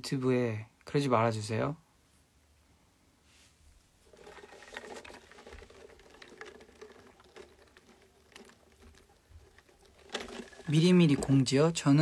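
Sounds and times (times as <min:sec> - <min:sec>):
slurping through a straw: 0:04.0 - 0:11.5.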